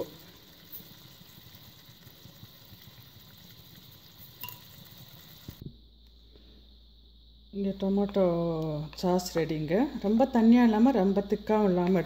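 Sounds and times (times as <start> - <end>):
sauce bubbling and sizzling: 0.0 - 5.6.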